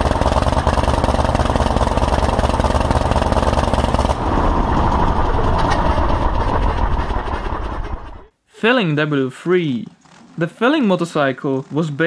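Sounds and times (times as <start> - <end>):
aero engine running: 0.0 - 8.3.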